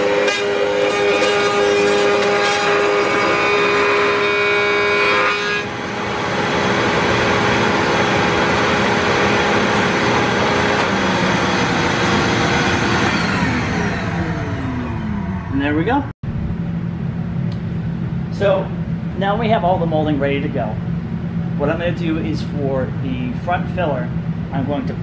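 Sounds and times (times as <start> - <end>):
router cutting wood: 0.0 - 15.6.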